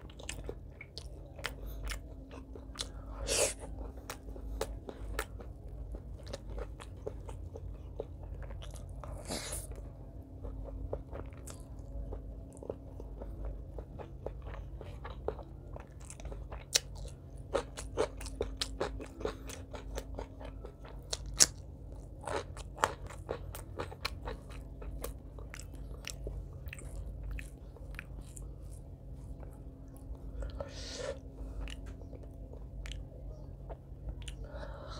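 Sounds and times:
faint low hum: 0.0 - 34.9
person chewing food: 0.0 - 34.9.

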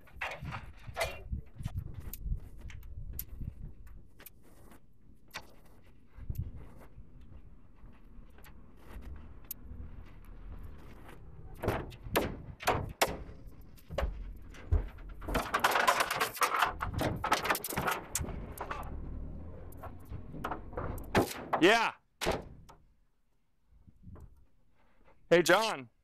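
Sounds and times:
ladder knocks and clunks: 0.0 - 1.7, 10.6 - 22.9
ladder rattling and scraping: 0.0 - 22.7.

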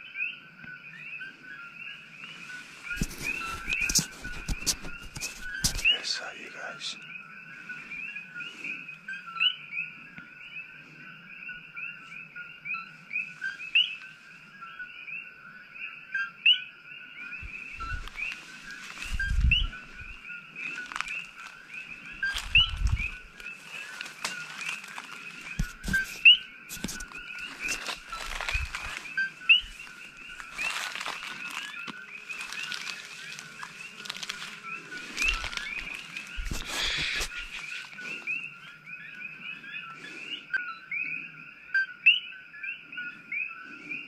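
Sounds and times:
frogs calling: 0.0 - 44.0
rustling of brush: 2.2 - 6.7, 17.4 - 38.8
low bumps of footsteps: 17.4 - 20.2, 22.2 - 37.8.

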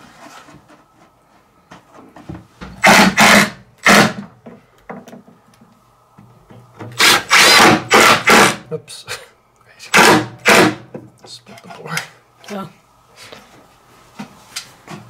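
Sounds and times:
drill driving screw into wood: 2.8 - 4.3, 7.0 - 8.6, 9.9 - 10.8.

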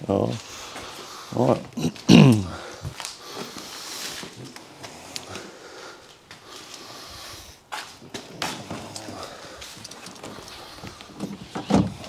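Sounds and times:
light clicks and rustles: 7.8 - 12.0.

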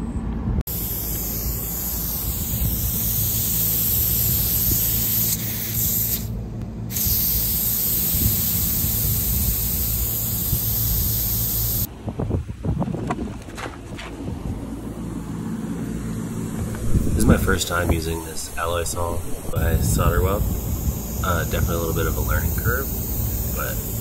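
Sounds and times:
machinery hum: 0.0 - 11.9, 14.3 - 24.0
loud hiss: 0.7 - 11.9, 16.4 - 24.0.

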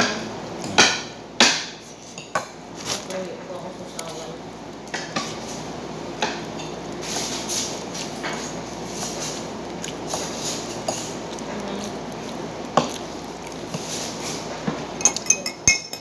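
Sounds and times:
soft eating sounds: 0.0 - 1.2, 1.8 - 16.0
cutlery clinking on plates: 14.7 - 16.0.

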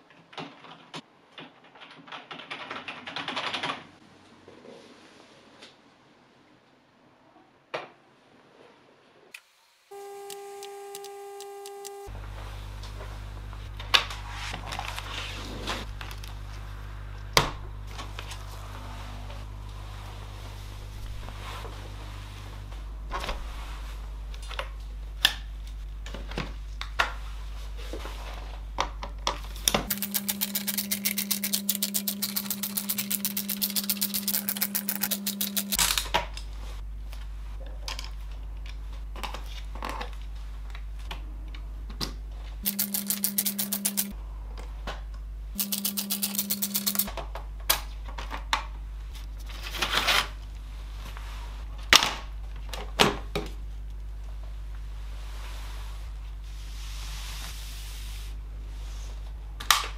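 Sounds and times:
electric screwdriver whirring: 9.9 - 12.1, 29.9 - 35.8, 42.7 - 44.1, 45.6 - 47.1
plastic parts and tools clicking: 29.3 - 36.2, 42.6 - 44.1, 45.6 - 47.1.

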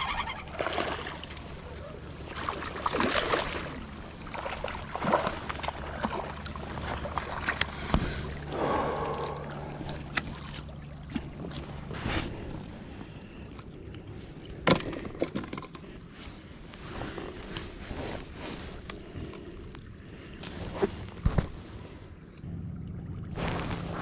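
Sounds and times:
low hum: 0.0 - 14.6, 16.3 - 24.0
water splashing: 0.4 - 11.8.

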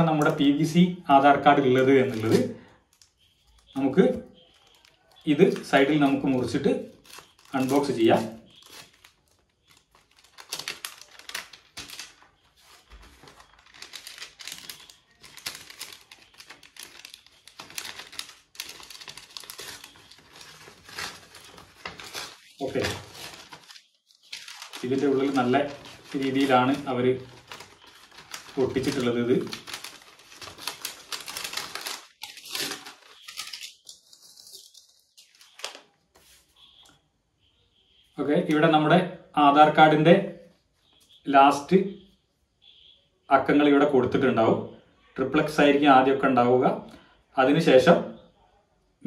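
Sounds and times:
paper rustling: 1.5 - 36.6
envelope being cut open: 13.6 - 34.7.

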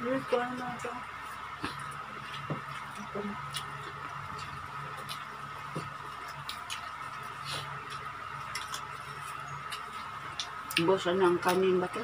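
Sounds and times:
steady background hum: 0.0 - 12.0
fingers picking at food: 1.6 - 12.0.

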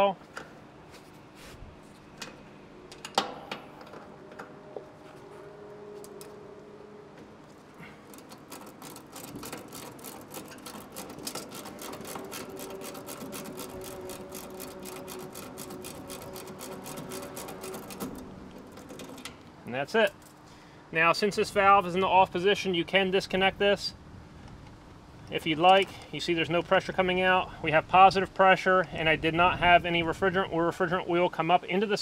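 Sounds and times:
fast ratchet clicking: 8.1 - 19.3.

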